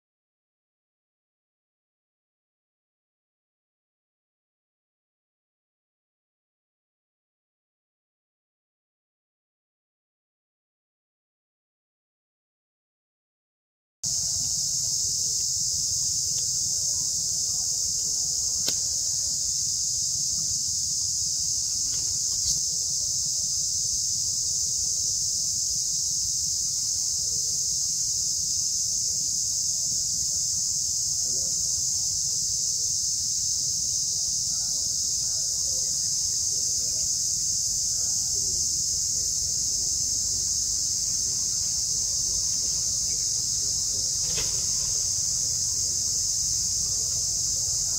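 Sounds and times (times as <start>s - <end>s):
high-pitched insect chorus: 14.1s - 47.9s.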